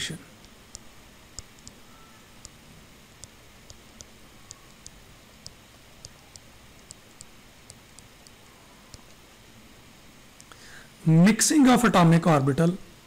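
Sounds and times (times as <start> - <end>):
faint background hiss: 0.0 - 13.0
stylus tapping a tablet: 0.4 - 9.2.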